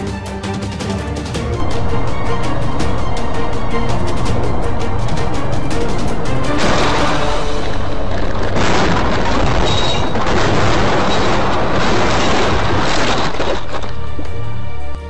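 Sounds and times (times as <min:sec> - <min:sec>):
loud distorted crash: 0:06.3 - 0:13.8
breaking glass: 0:08.6 - 0:13.9.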